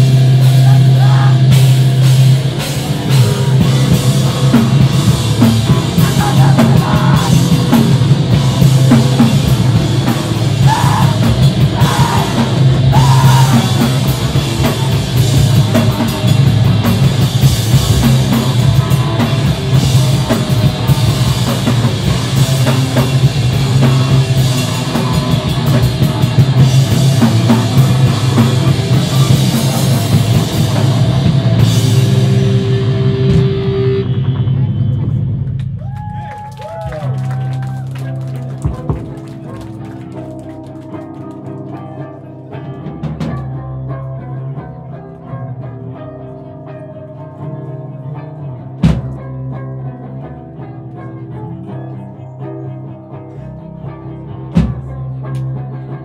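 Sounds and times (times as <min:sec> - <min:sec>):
drum kit with busy cymbals: 0:00.0 - 0:35.6, 0:48.8 - 0:49.3, 0:54.4 - 0:55.5
bass guitar: 0:00.0 - 0:56.0
electric guitar: 0:00.0 - 0:56.0.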